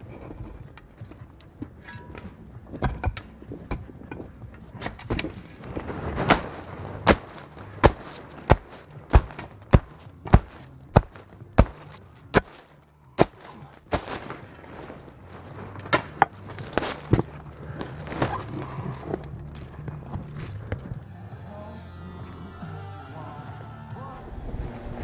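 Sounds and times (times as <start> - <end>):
mattock and shovel chopping soil: 1.7 - 20.9.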